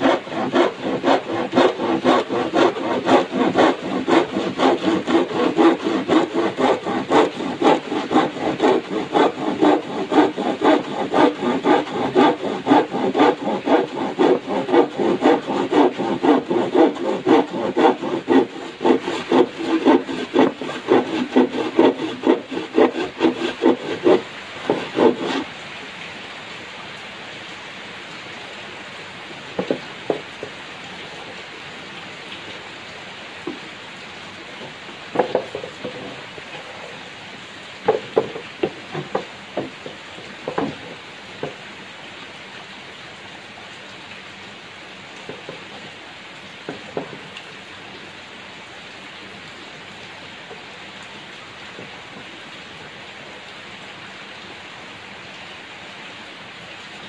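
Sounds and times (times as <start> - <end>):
handsaw cutting plywood: 0.0 - 25.5, 29.6 - 30.2, 35.2 - 37.0, 37.9 - 41.6
rain hiss: 25.3 - 57.0.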